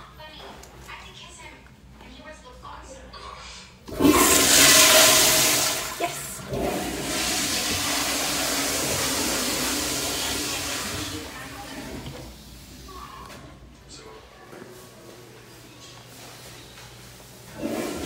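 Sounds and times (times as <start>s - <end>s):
toilet flushing: 3.8s - 13.6s, 17.4s - 18.0s.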